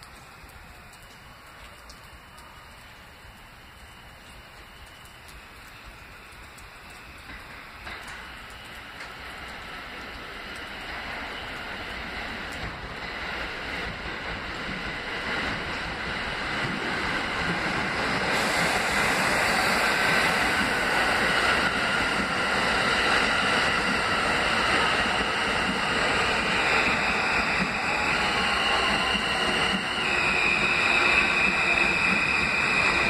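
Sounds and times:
subway train wheels on rail: 0:00.0 - 0:33.0
faint high whine: 0:17.2 - 0:33.0.

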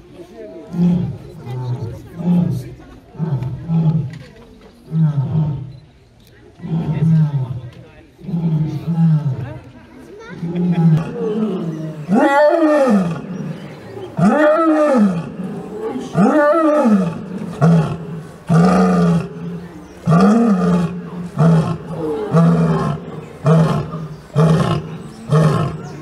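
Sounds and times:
lion grunting calls: 0:10.4 - 0:26.0
lioness roaring: 0:10.4 - 0:26.0.

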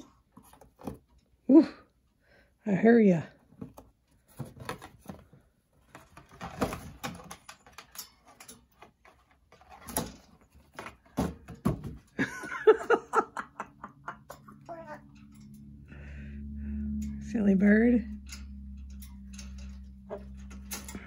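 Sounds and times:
parrot voice sounds: 0:14.6 - 0:15.1.

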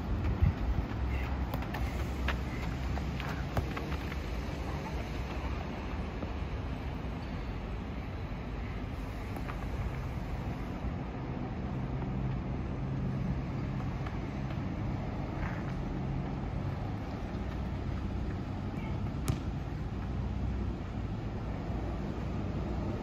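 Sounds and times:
distant city traffic rumble: 0:00.0 - 0:23.0.

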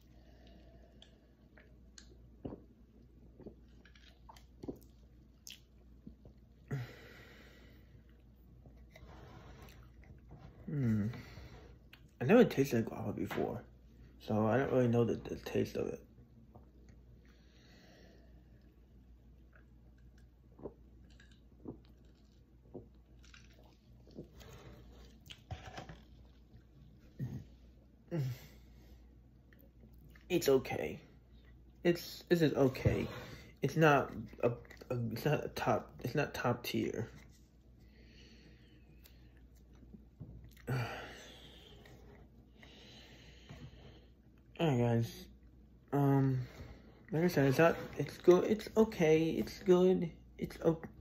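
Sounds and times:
person sipping and swallowing: 0:00.1 - 0:06.7, 0:19.4 - 0:28.3
person gulping drink: 0:00.4 - 0:06.8, 0:19.4 - 0:28.3.

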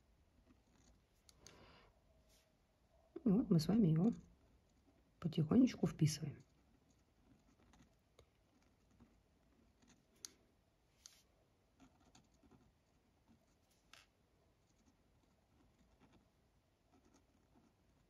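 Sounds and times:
pen scratching on paper: 0:06.4 - 0:10.2, 0:11.0 - 0:14.0, 0:14.6 - 0:18.0.

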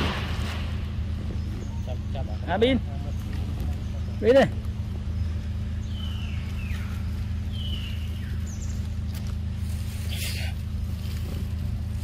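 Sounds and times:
steady low hum: 0:00.0 - 0:12.0
high chirping calls: 0:01.2 - 0:09.2.

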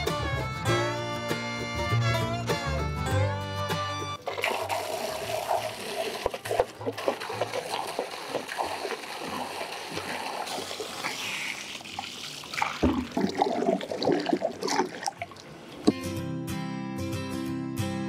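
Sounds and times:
water spilling onto stone: 0:04.2 - 0:15.4
hose water splashing into metal pot: 0:04.2 - 0:15.5.

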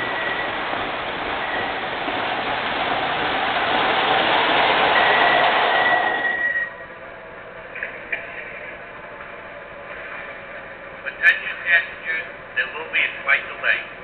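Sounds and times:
model train rumbling on track: 0:00.0 - 0:06.6
thin high whine: 0:04.5 - 0:08.9.

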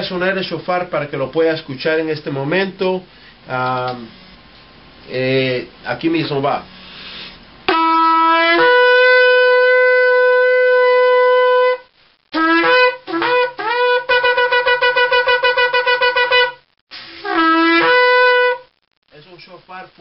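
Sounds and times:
ram's horn blasts: 0:07.7 - 0:16.6, 0:17.2 - 0:18.8.

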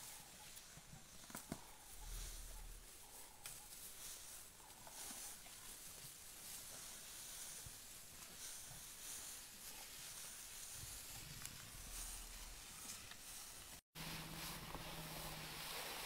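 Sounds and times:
low rumble: 0:01.8 - 0:03.0, 0:10.8 - 0:12.9.

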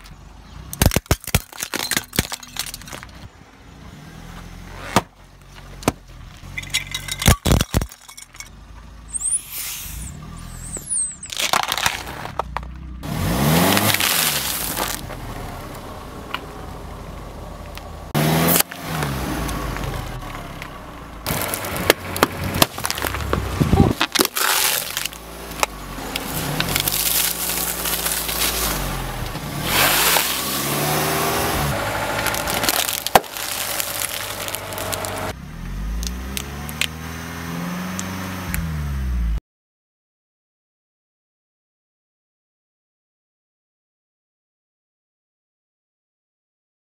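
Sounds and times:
car engine: 0:00.0 - 0:39.4
tyre crushing brittle food: 0:00.7 - 0:03.2, 0:11.3 - 0:12.7, 0:13.5 - 0:15.0, 0:21.3 - 0:29.0, 0:29.7 - 0:31.4, 0:32.0 - 0:35.3.

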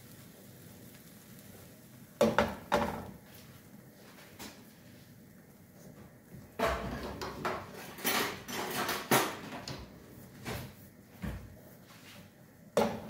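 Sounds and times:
cookware clattering: 0:06.6 - 0:09.9.

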